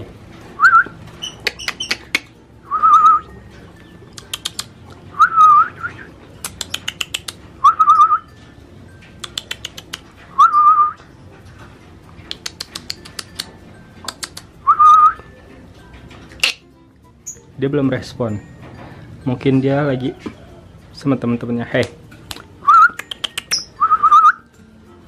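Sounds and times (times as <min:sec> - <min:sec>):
person whistling: 0:00.6 - 0:01.0, 0:02.7 - 0:03.3, 0:05.2 - 0:06.1, 0:07.6 - 0:08.3, 0:10.3 - 0:11.0, 0:14.6 - 0:15.3, 0:22.6 - 0:24.4.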